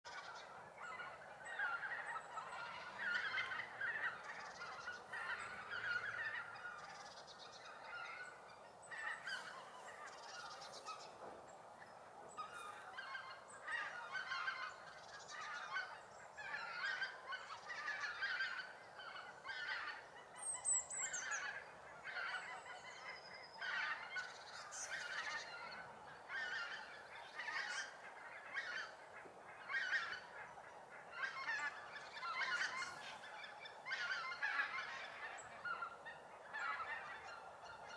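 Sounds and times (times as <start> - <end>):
geese calling: 0.1 - 37.9.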